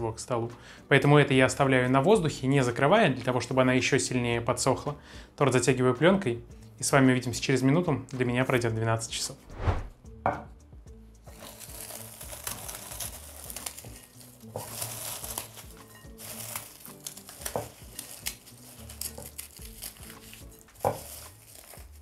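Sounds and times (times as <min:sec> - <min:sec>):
background music: 0:00.0 - 0:22.0
cling film crinkling: 0:11.3 - 0:22.0.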